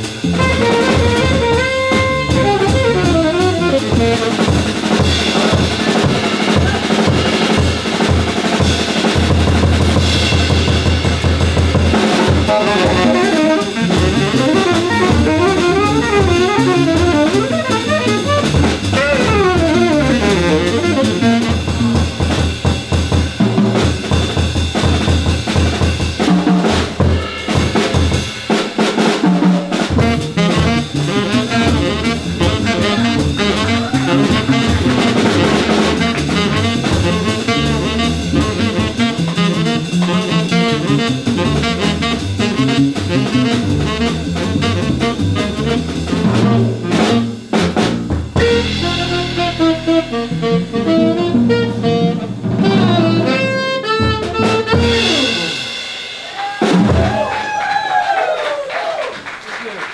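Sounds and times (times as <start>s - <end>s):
tenor saxophone playing jazz: 0.0s - 23.2s, 28.9s - 55.9s
drum kit: 0.0s - 59.8s.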